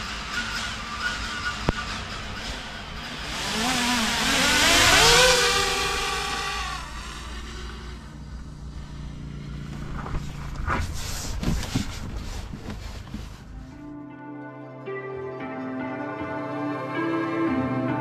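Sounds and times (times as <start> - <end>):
drone motors whining: 0.0 - 10.5.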